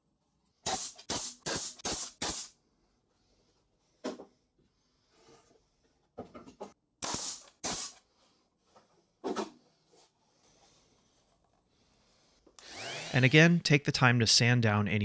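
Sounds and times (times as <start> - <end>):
nail gun firing into plywood: 0.6 - 2.5, 7.0 - 8.0.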